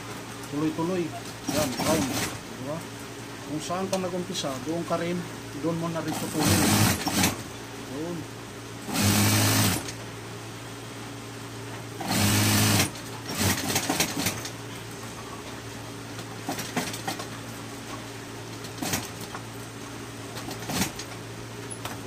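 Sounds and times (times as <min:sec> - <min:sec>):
sewing machine stitching: 0:01.5 - 0:02.4, 0:06.1 - 0:07.4, 0:08.9 - 0:09.9, 0:12.0 - 0:14.4, 0:20.5 - 0:21.1
sewing machine motor humming: 0:06.2 - 0:07.4, 0:08.9 - 0:09.9, 0:12.0 - 0:14.4.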